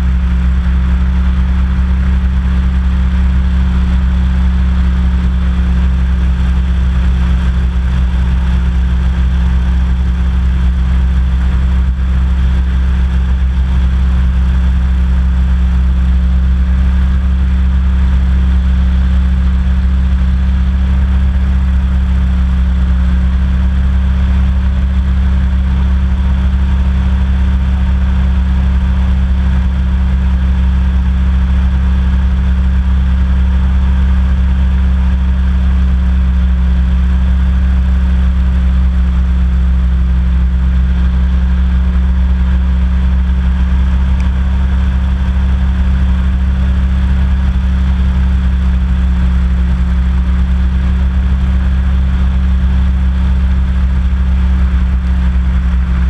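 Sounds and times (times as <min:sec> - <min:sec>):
hovercraft engine droning: 0:00.0 - 0:30.6, 0:54.9 - 0:56.0.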